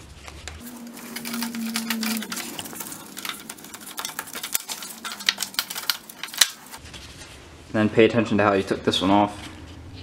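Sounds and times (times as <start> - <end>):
metallic chain clicks and clinks: 0.7 - 6.8.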